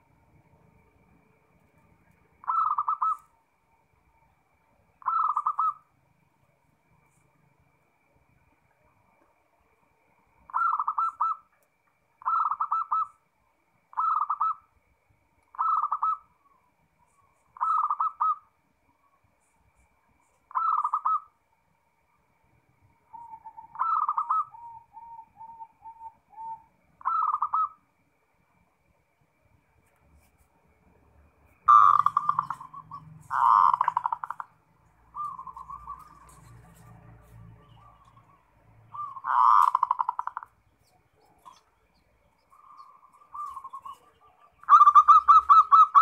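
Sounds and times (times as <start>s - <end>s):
dove cooing: 2.4s - 3.2s, 5.0s - 5.9s, 10.5s - 11.5s, 12.2s - 13.2s, 13.9s - 14.7s, 15.5s - 16.6s, 17.6s - 18.5s, 20.5s - 21.3s, 23.1s - 27.8s, 31.6s - 36.9s, 37.7s - 41.7s, 42.5s - 46.0s.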